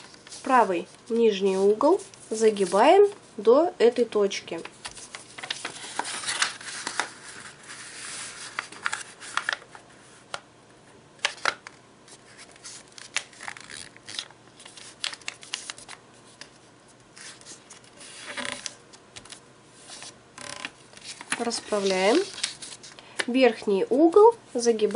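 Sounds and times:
paper rustling and crinkling: 4.6 - 9.8, 11.2 - 16.6, 17.2 - 23.0.

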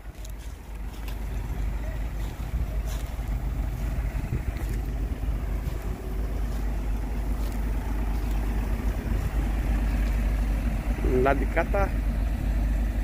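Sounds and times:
tractor diesel engine idling: 0.0 - 13.0
wind on microphone: 3.6 - 6.0.

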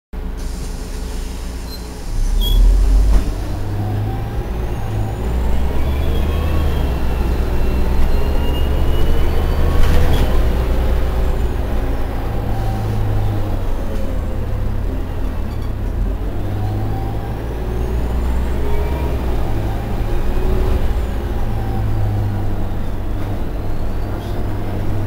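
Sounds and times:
bus engine rumble: 0.2 - 25.0
brief hiss: 0.4 - 3.4
engine whines: 1.7 - 25.0.

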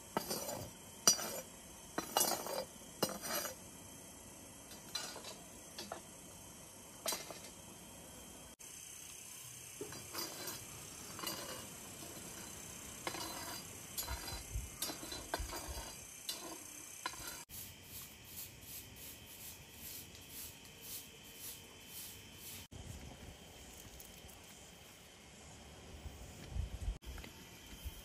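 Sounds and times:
utensils and dishes clinking: 4.7 - 6.0, 7.0 - 7.5, 9.8 - 17.5.

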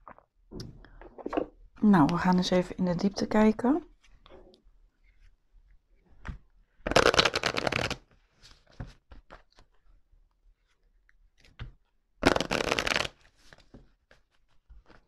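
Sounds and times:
cards being shuffled: 6.2 - 9.8, 11.4 - 15.0.

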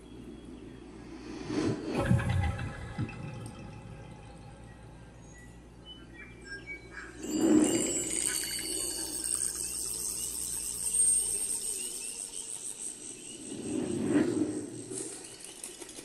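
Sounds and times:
deep whoosh: 1.2 - 4.2
high shimmering fluttering sound: 1.2 - 5.4, 7.2 - 16.0.

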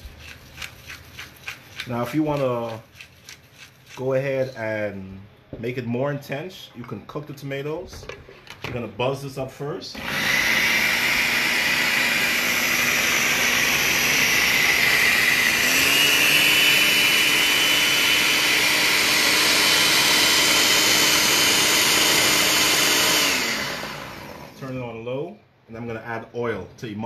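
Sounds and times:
blender running: 10.0 - 24.6.

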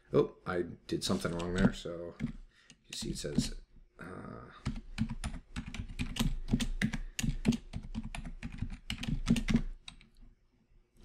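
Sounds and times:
typing on a computer keyboard: 4.6 - 10.1.

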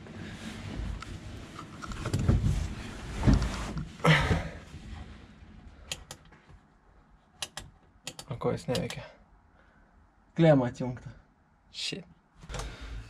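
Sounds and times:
sharp clicks: 7.4 - 9.0.

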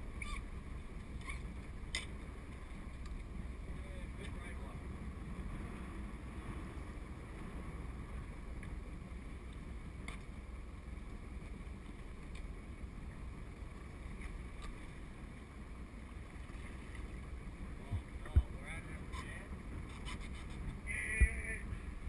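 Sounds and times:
wind and water rumble: 0.0 - 22.0
faint clicks: 12.2 - 12.5.

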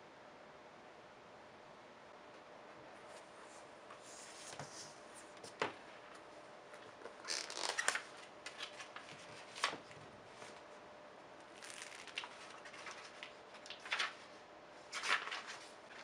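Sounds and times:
paper rustling: 6.9 - 10.6, 11.5 - 16.0.

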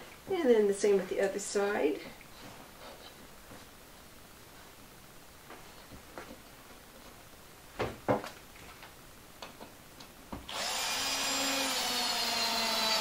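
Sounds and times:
cordless drill driving screw: 10.5 - 13.0.

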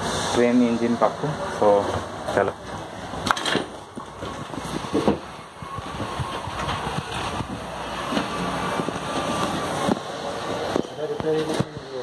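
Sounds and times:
faint steady whine: 0.0 - 12.0
workshop knocks and clatter: 1.9 - 10.1.

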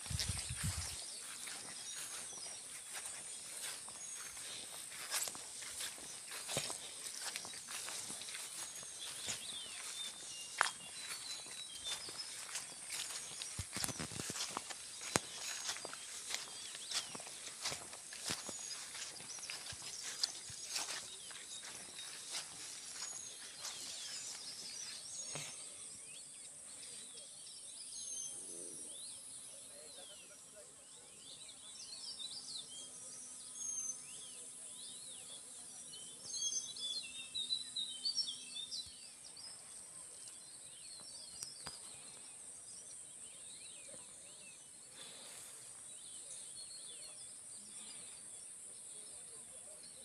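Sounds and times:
high insect hum: 0.0 - 27.0
small birds chirping: 0.0 - 50.0.

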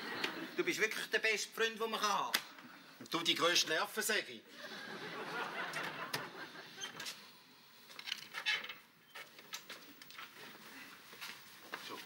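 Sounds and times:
studio audience laughter: 4.5 - 6.8.

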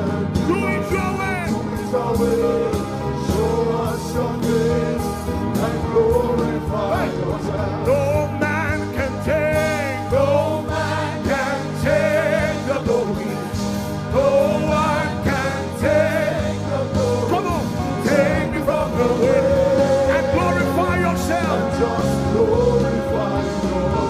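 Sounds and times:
sustained instrumental chords: 0.0 - 24.0
person singing: 0.4 - 4.8.

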